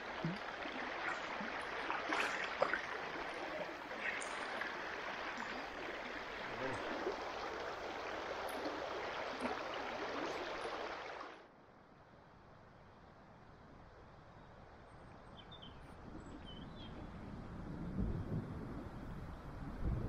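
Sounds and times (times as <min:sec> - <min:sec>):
fish splashing: 0:00.0 - 0:11.3
river water rushing: 0:00.0 - 0:11.4.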